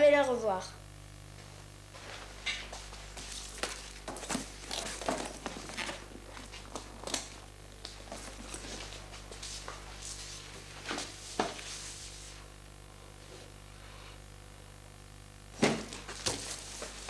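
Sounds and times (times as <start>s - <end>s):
steady low hum: 0.0s - 17.0s
bag rustling and knocking: 3.4s - 7.4s.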